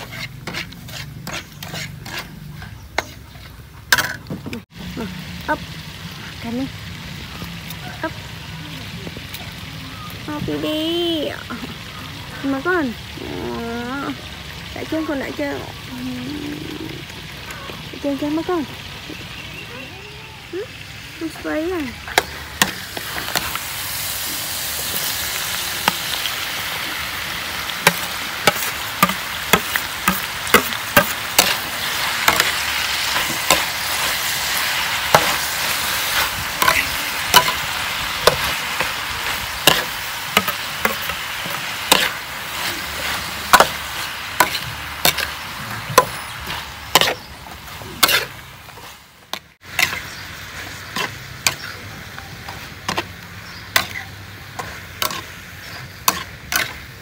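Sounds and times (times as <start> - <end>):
metal spatula scraping wok: 0.0 - 4.3, 22.0 - 57.0
food sizzling in a wok: 0.0 - 57.0.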